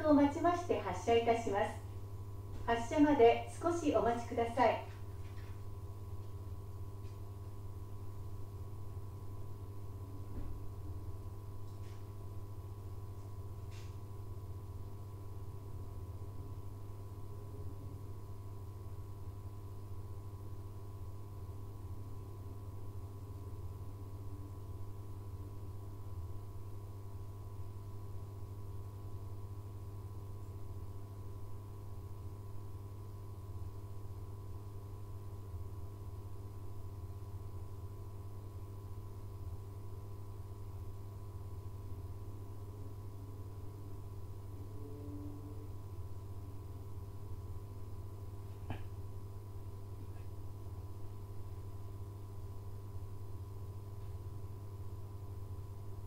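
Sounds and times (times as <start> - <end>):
electrical equipment humming: 0.0 - 56.0.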